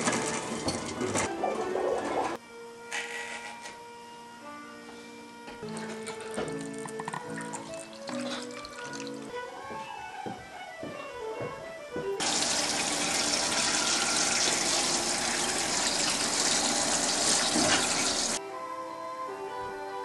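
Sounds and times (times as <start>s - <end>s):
background music: 0.0s - 20.0s
faucet running into sink: 12.2s - 18.4s.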